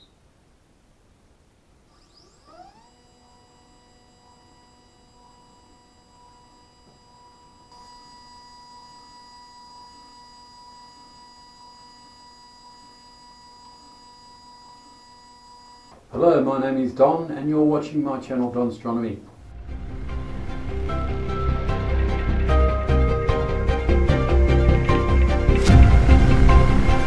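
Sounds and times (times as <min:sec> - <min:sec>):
stepper motor whine: 0:01.9 - 0:17.9, 0:19.3 - 0:27.0.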